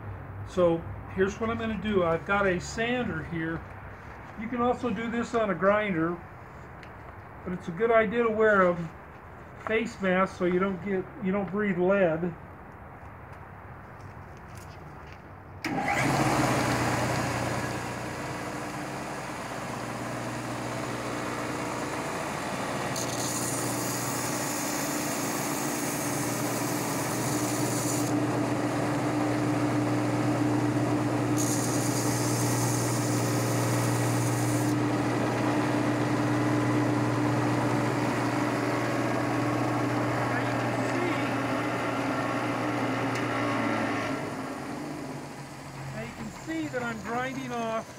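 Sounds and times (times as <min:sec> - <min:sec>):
belt sander running: 0:15.7 - 0:47.9
high grinding hiss: 0:19.7 - 0:28.2, 0:31.4 - 0:34.8, 0:45.1 - 0:47.9.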